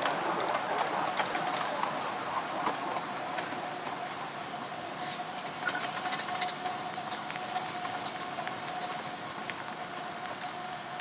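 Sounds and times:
miniature train hiss: 2.4s - 11.0s.

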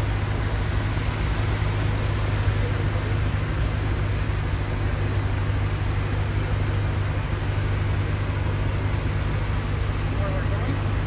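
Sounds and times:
constant rushing noise: 0.0s - 11.0s
propeller aircraft engine droning: 0.0s - 11.0s.

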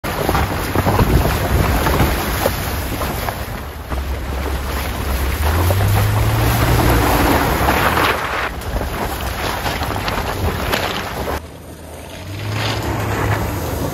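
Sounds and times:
water splashing: 0.0s - 11.4s
wind buffeting microphone: 0.0s - 11.4s
low engine hum: 0.0s - 13.9s
tyres crunching over gravel: 0.0s - 13.9s.

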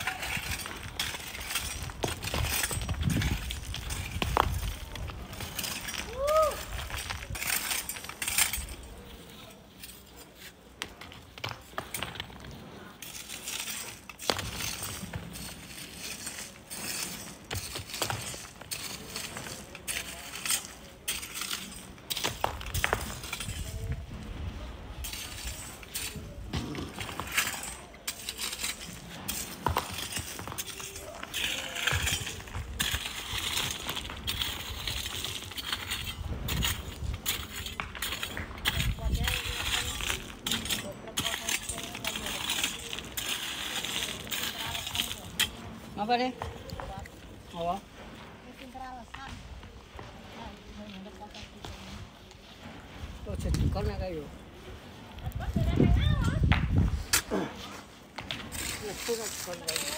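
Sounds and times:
rocks clinking and knocking: 0.0s - 24.0s, 24.8s - 47.8s
sand being dug by hand: 12.8s - 48.8s, 49.6s - 59.9s.

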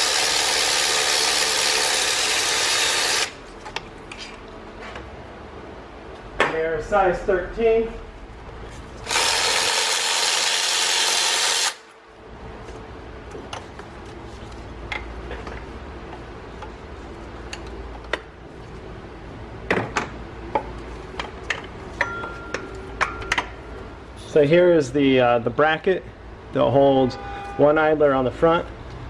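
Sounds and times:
power tool running: 0.0s - 3.4s, 9.0s - 12.0s
tools and metal parts clinking: 21.1s - 23.6s.

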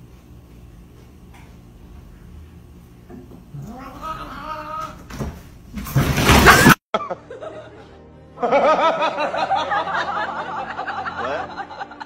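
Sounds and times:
people giggling: 6.4s - 12.0s.

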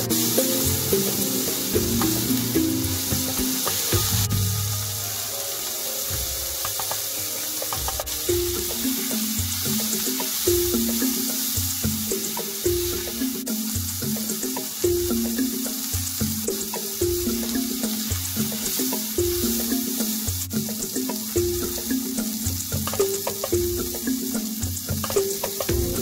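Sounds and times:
background music: 0.0s - 26.0s
vegetables sizzling in hot oil: 0.0s - 26.0s.

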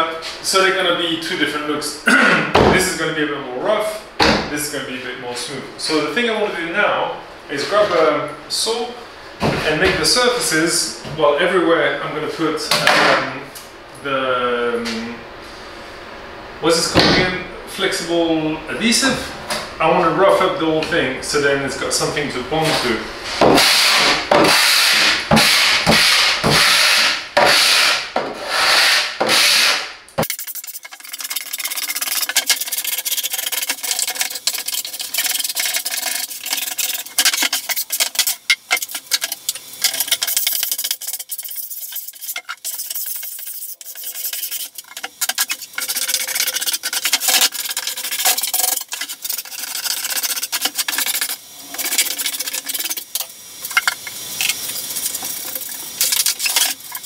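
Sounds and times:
hand saw scraping plywood: 23.3s - 29.9s.

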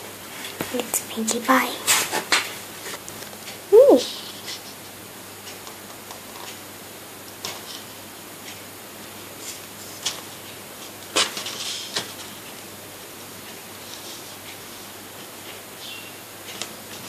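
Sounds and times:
faint room noise: 0.0s - 17.0s
paper rustling: 9.4s - 12.5s.

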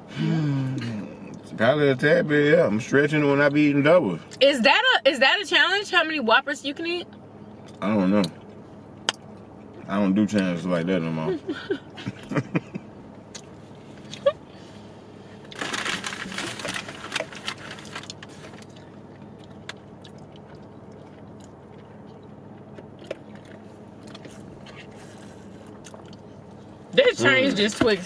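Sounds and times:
low hum inside car: 0.0s - 28.0s
soft chewing: 17.2s - 26.8s.

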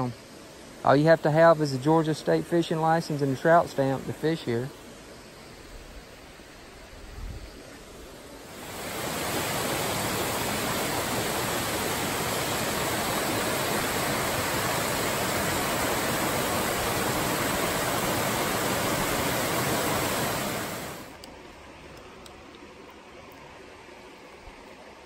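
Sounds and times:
creek rushing over boulders: 8.4s - 21.3s.

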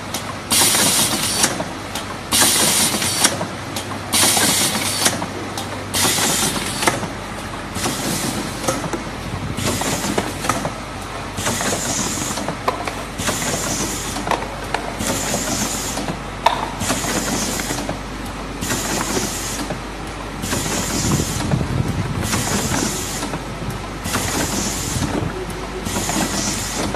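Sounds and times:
machine mechanical clatter: 0.0s - 26.9s.

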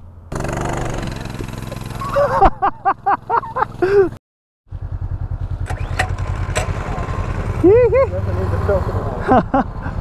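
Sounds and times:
motorcycle engines running: 0.3s - 10.0s
man laughing: 1.4s - 4.2s, 7.7s - 10.0s.

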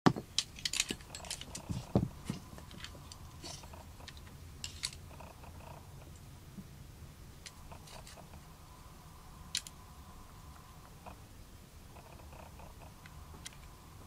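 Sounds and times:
dull thump: 1.8s - 2.4s.

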